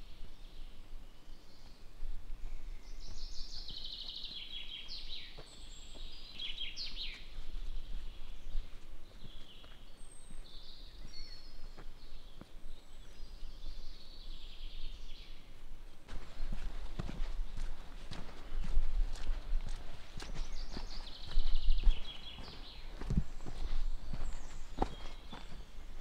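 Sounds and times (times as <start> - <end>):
faint footfalls: 16.1 - 26.0.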